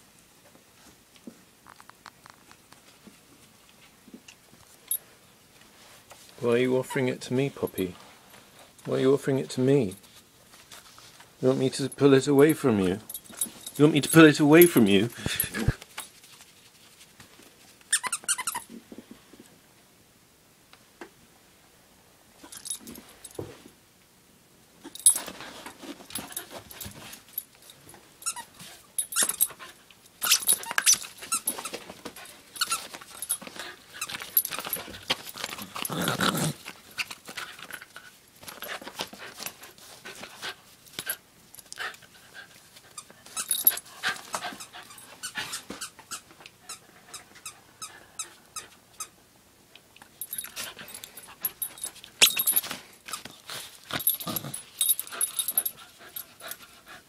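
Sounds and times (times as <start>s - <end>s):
dog play noises: 9.8s - 18.8s, 22.4s - 23.7s, 24.8s - 49.2s, 50.0s - 57.0s.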